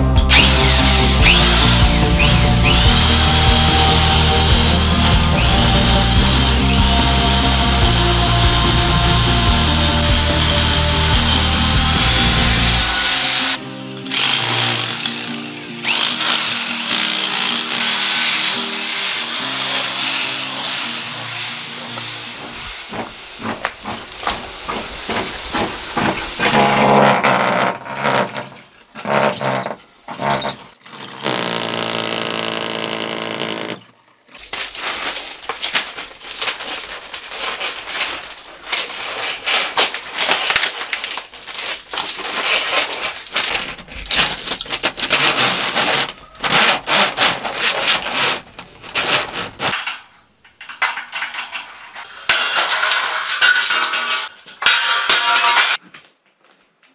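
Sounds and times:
power tool running: 0.1 - 22.6, 30.9 - 33.9
scraping and rubbing strokes: 34.4 - 50.1.

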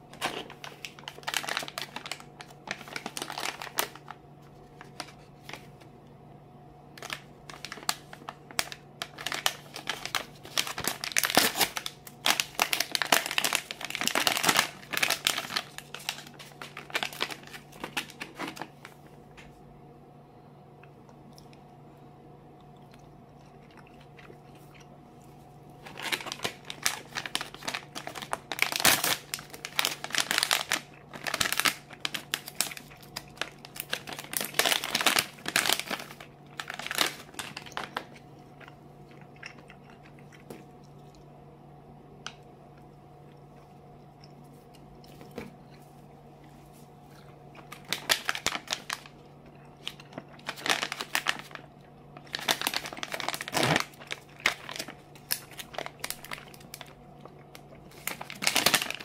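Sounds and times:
plastic pouches crinkling: 0.0 - 5.8, 7.0 - 19.5, 25.8 - 38.8, 46.7 - 59.0.

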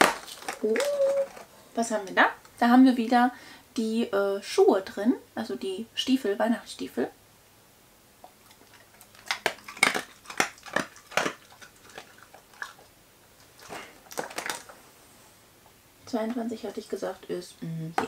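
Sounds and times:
dog crunching dry biscuit: 0.0 - 1.5, 8.4 - 14.8.

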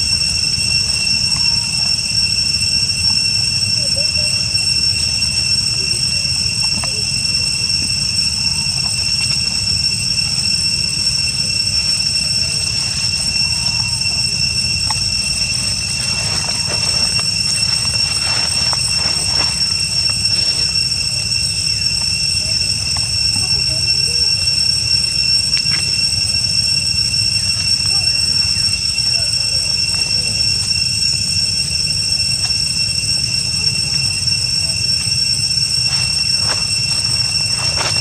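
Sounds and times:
high-pitched insect drone: 0.0 - 38.0.

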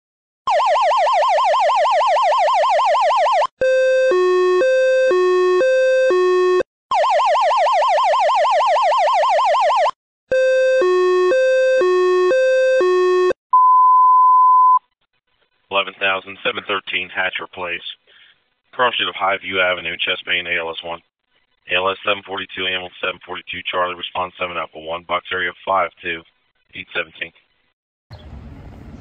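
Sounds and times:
steady single beep: 13.5 - 14.8.

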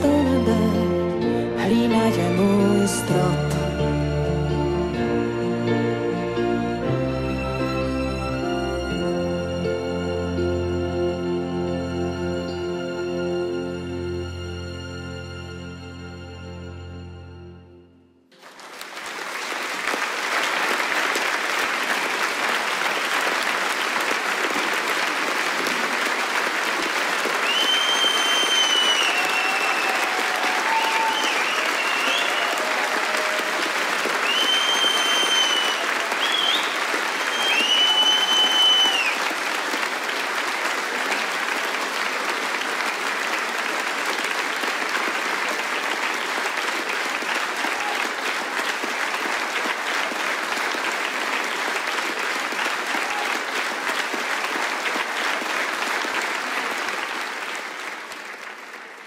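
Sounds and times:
audience applauding: 18.4 - 59.0
high whistles from crowd: 27.4 - 32.8, 34.2 - 39.3.

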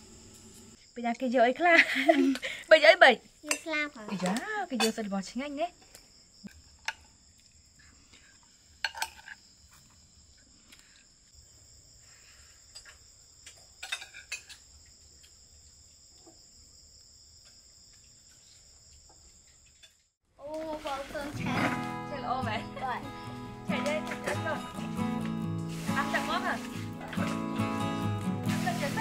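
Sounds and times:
insects chirring: 0.0 - 29.0
spoons clinking on plates: 4.3 - 5.1, 8.8 - 9.4, 13.8 - 14.7.

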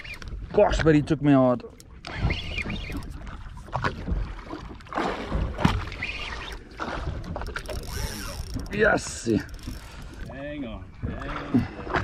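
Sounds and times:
water sloshing against hull: 0.0 - 12.0.

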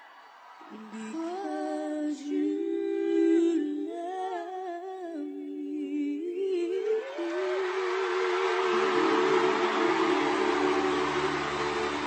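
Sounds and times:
two women singing ballad duet: 0.7 - 11.4.

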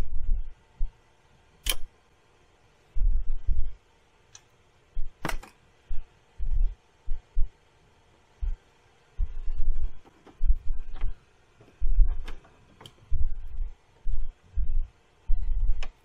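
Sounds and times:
sharp metallic clicks: 1.6 - 1.9.

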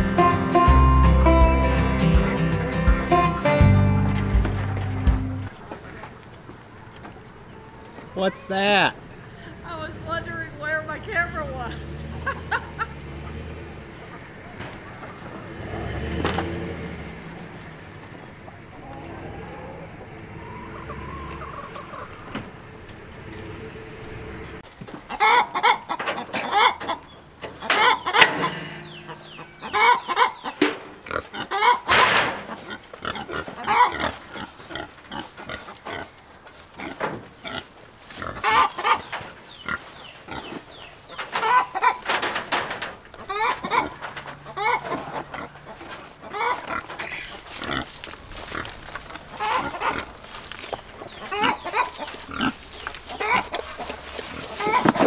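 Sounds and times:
pigs grunting: 12.0 - 24.6, 27.6 - 42.2, 43.2 - 55.0.

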